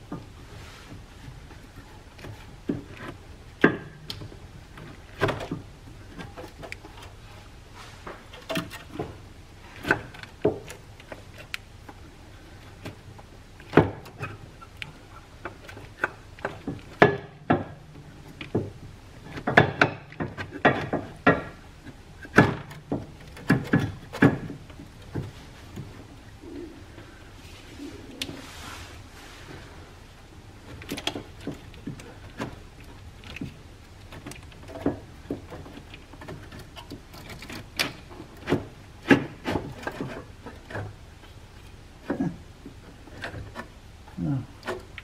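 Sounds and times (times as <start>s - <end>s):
metal knocks and clunks: 12.8s - 26.1s.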